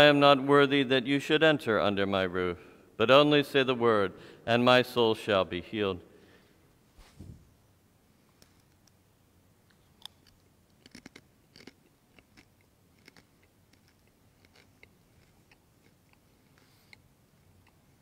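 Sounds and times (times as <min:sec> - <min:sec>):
chewing close to microphone: 0:10.8 - 0:16.2.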